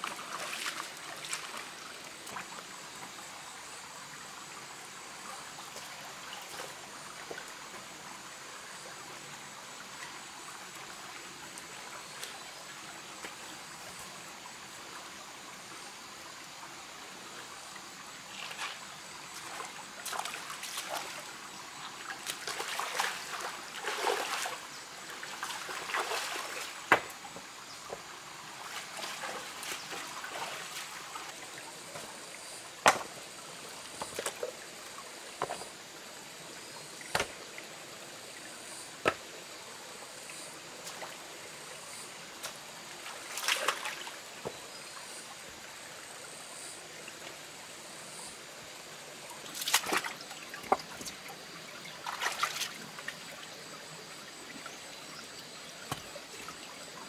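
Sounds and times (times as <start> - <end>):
splashes in water: 0.0 - 1.7, 19.4 - 21.3, 22.0 - 27.1, 28.6 - 31.3, 42.4 - 44.2, 49.4 - 51.3, 51.9 - 53.4
stream trickling over rocks: 0.0 - 57.0
wet stones knocking together: 32.8 - 33.2, 37.1 - 37.4, 55.9 - 56.1.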